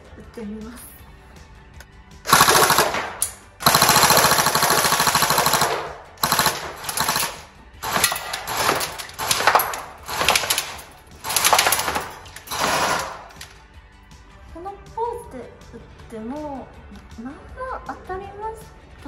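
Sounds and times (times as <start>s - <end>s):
airsoft gun firing full auto: 2.3s - 13.4s.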